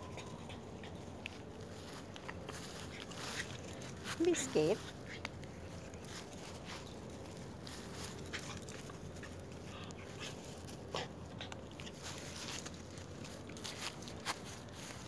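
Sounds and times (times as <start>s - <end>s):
puppy whining: 0.0s - 1.7s.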